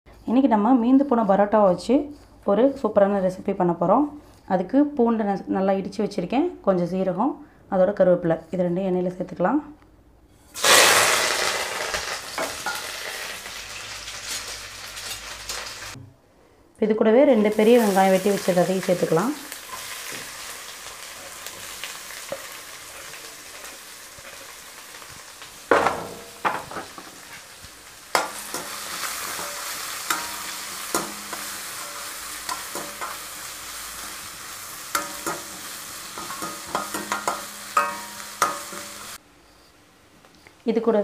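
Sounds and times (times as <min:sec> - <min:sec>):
onions sizzling in oil: 0:10.5 - 0:16.0, 0:17.3 - 0:39.2
spatula scraping against pan: 0:27.1 - 0:39.2.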